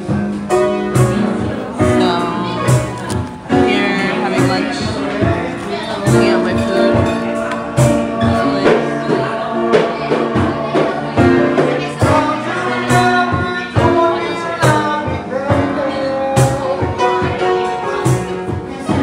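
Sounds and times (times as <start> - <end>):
backing track with drum beat: 0.0 - 19.0
people singing: 0.0 - 19.0.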